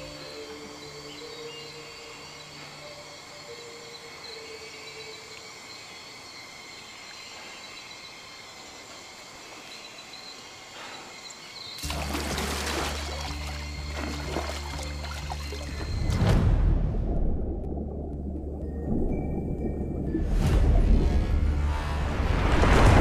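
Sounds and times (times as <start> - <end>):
soft sustained music notes: 0.0 - 6.0, 11.8 - 16.2
faint outdoor noise: 0.0 - 16.2
deep low drone: 12.0 - 23.0.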